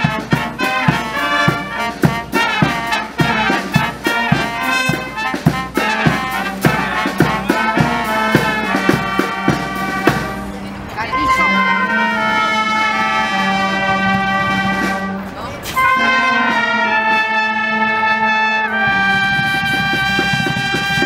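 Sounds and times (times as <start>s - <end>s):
bass drum beats: 0.0s - 10.5s
brass band playing: 0.0s - 21.0s.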